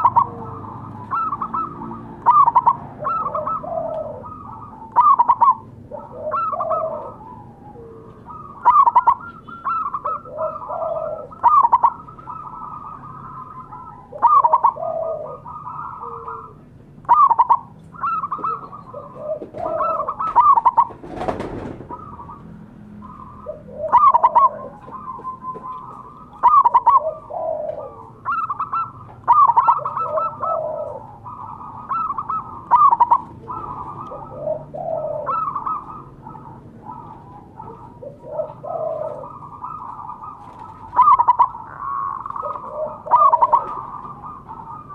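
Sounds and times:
dove cooing: 0.0 - 44.9.

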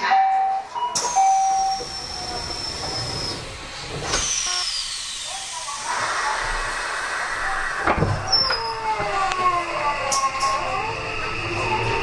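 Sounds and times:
short steady beep: 0.1 - 1.8
compressed air hissing with whistle: 1.0 - 7.6.

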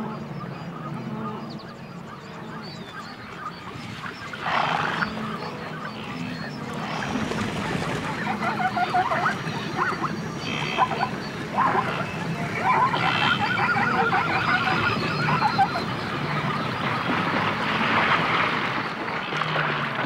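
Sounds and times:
wildebeest honking and grunting: 4.4 - 16.6.

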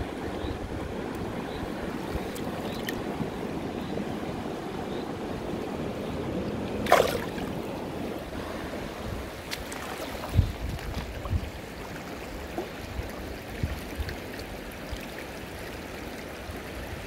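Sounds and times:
river water running over stones: 0.0 - 17.0
fish splash: 6.8 - 7.5.

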